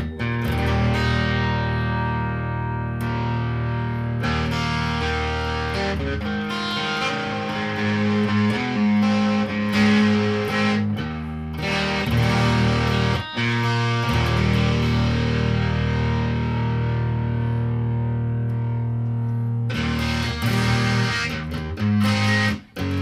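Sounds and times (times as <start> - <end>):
distorted electric guitar chords: 0.0 - 23.0.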